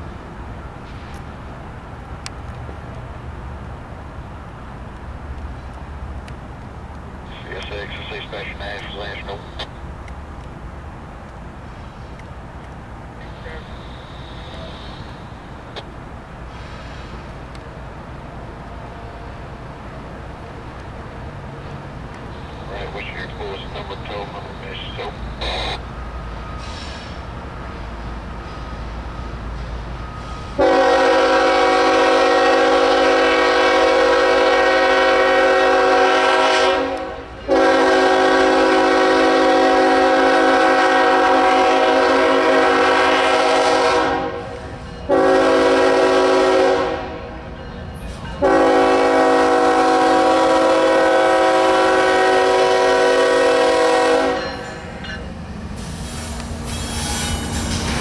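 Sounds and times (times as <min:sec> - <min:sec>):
locomotive passing: 0:00.0 - 0:58.0
locomotive air horn: 0:13.4 - 0:15.1, 0:25.4 - 0:25.8, 0:30.5 - 0:47.3, 0:48.4 - 0:54.6.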